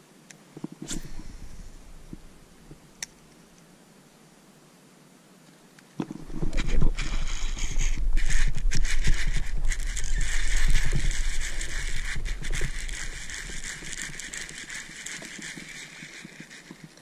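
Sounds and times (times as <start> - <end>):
wind buffeting microphone: 6.1 - 14.8.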